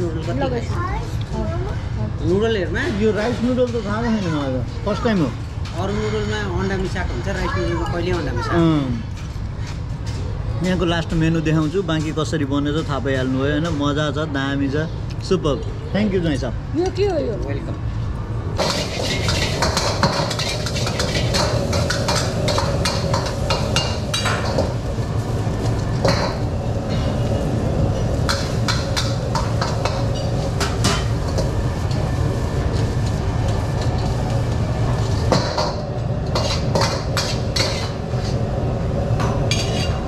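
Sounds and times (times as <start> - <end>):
metal cookware clanking: 18.6 - 24.8, 27.9 - 31.5, 35.2 - 38.4, 39.2 - 40.0.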